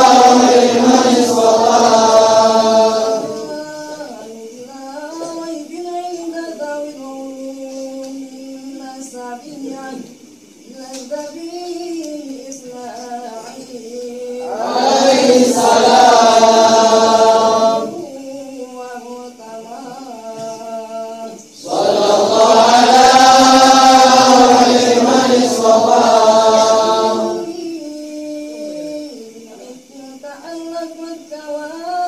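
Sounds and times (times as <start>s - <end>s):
group of voices chanting: 0.0s - 3.5s, 14.5s - 18.0s, 21.6s - 27.5s
solo voice chanting: 0.0s - 32.0s.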